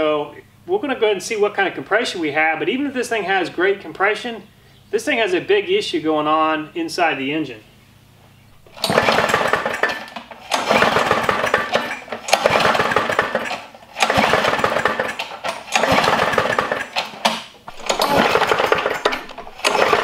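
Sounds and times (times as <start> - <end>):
lawn mower engine pull-start clatter: 8.6 - 20.0.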